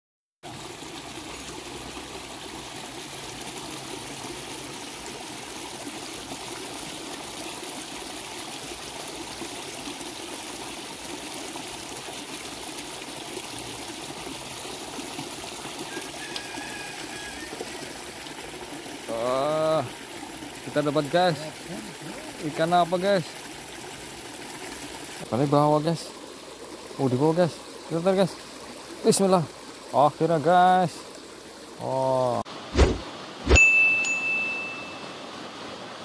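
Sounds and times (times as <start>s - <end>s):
stream trickling over rocks: 0.4s - 36.0s.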